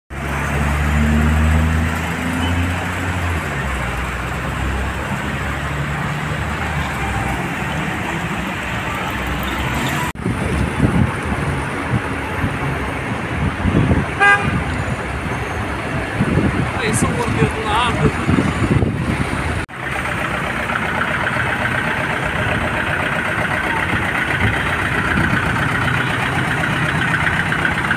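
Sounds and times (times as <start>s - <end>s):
truck engine running: 0.1s - 14.4s, 16.2s - 27.9s
wind on microphone: 10.2s - 19.6s
car horn toot: 14.1s - 14.8s.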